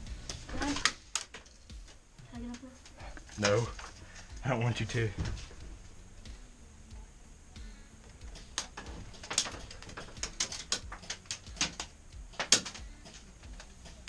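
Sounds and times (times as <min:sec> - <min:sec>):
pellets knocking on plywood: 0:08.2 - 0:14.0.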